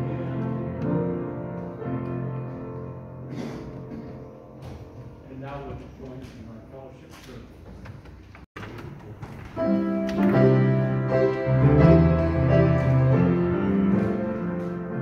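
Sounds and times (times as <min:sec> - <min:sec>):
slow keyboard chords: 0:00.0 - 0:05.2, 0:09.6 - 0:15.0.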